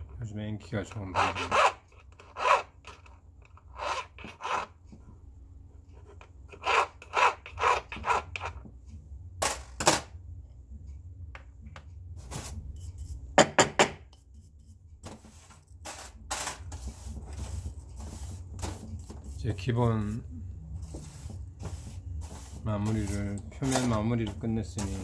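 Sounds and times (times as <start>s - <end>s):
steady low hum: 0.0s - 25.0s
file rasping on metal: 1.0s - 2.8s, 3.6s - 4.8s, 6.5s - 8.6s.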